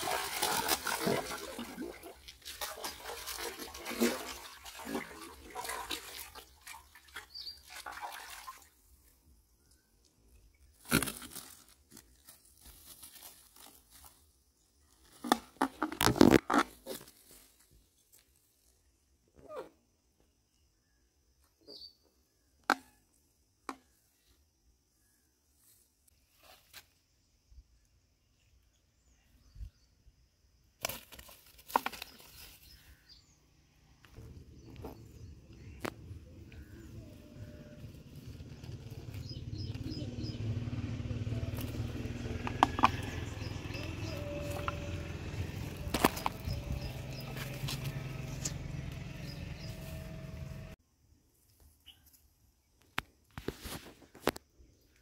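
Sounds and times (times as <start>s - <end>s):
fish splashing in water: 0.0s - 8.7s
rustling on grass: 10.8s - 15.3s, 43.4s - 50.8s
faint bird chirps: 19.4s - 23.2s, 51.8s - 52.2s
fish flopping in dry grass: 44.4s - 48.5s.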